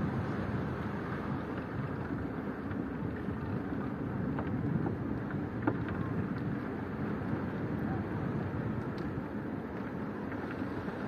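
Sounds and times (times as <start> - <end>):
wind on microphone: 0.0 - 11.0
faint clicks: 8.8 - 9.2.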